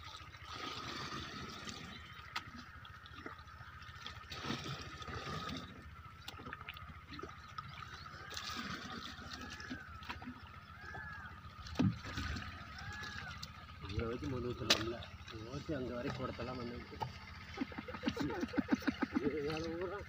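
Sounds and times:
water splashing and trickling: 0.0s - 20.0s.

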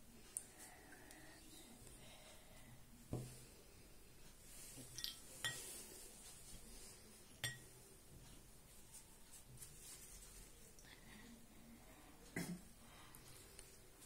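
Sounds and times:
light plastic clicks and clinks: 4.9s - 5.6s.

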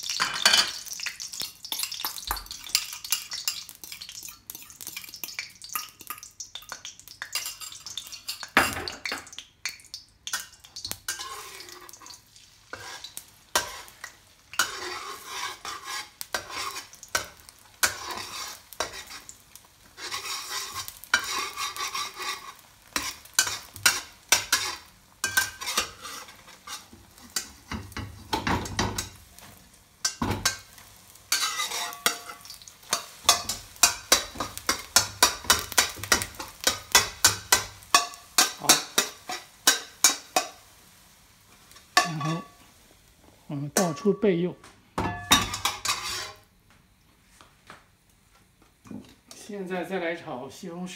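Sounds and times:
egg sizzling in oil: 0.0s - 50.0s
metal spatula scraping a wok: 11.1s - 29.1s, 30.1s - 40.6s, 45.1s - 46.5s.

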